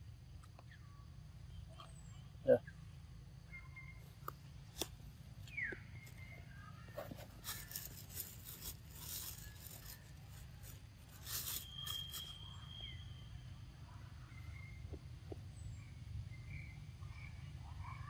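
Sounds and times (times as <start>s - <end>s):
steady high whistle: 11.4s - 13.5s.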